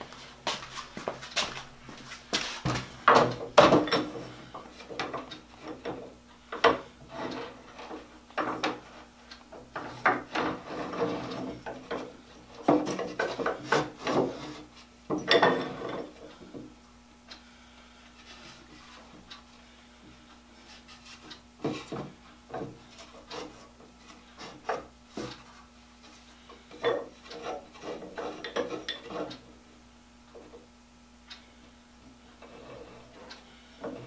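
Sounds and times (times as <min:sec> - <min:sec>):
wood and iron knocking on workbench: 0:03.1 - 0:04.1.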